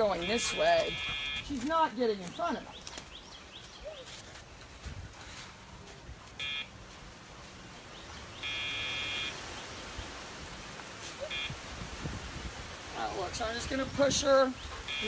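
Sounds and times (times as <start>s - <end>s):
training collar beeps: 0.0s - 1.6s, 6.4s - 6.7s, 8.4s - 9.3s, 11.3s - 11.6s.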